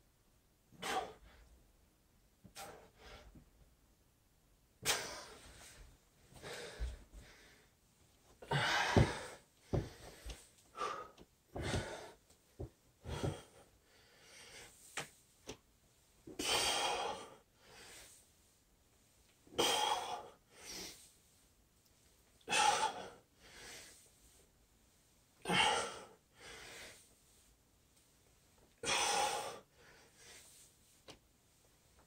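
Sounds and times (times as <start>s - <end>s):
man breathing hard: 4.8s - 7.8s, 8.4s - 14.8s, 16.4s - 18.2s, 22.5s - 24.1s, 25.4s - 27.2s, 28.8s - 30.6s
dull thumps: 8.6s - 10.3s.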